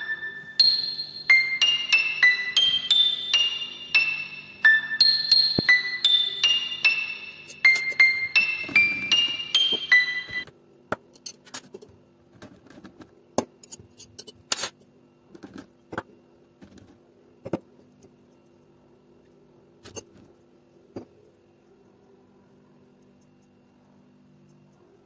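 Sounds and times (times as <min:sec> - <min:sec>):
glasses ringing in pitched notes: 0:00.0 - 0:10.5
faint steady hum: 0:00.0 - 0:25.0.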